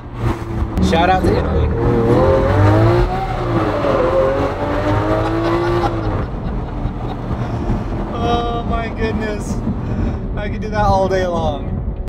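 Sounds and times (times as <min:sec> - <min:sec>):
car engine accelerating: 0:00.0 - 0:11.1.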